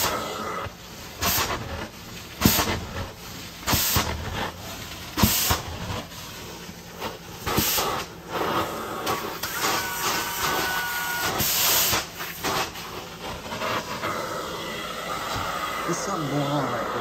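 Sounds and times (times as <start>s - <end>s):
machine hum: 0.0s - 17.0s
loud hissing rushes: 13.6s - 17.0s.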